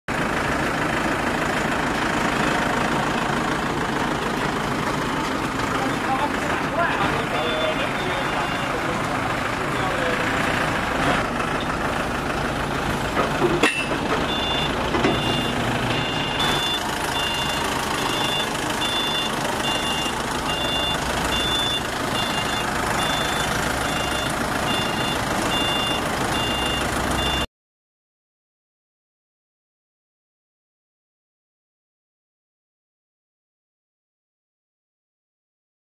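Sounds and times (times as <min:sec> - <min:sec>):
forklift engine running: 0:00.1 - 0:27.5
reversing alarm beeping: 0:06.9 - 0:10.2, 0:14.3 - 0:27.5.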